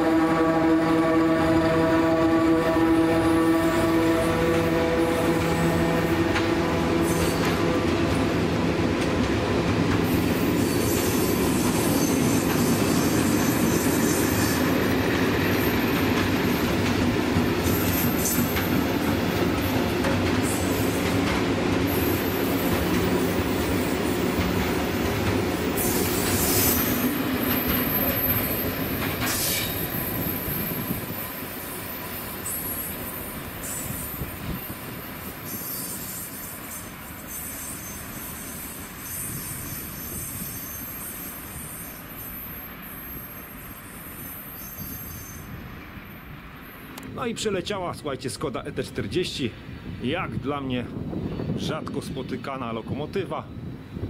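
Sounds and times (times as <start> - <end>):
high wheel squeals: 7.0 - 7.6, 10.0 - 19.8, 25.6 - 46.9.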